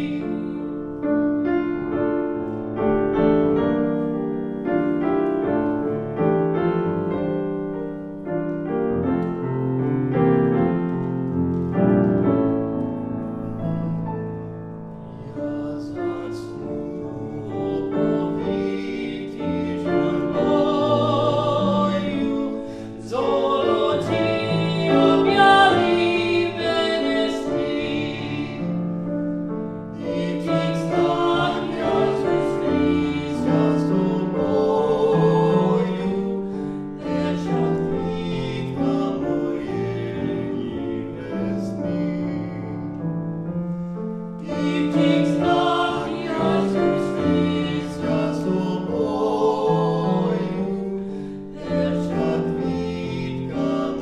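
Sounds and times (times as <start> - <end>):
grand piano: 0.0 - 54.0
man singing classical song: 15.0 - 28.8.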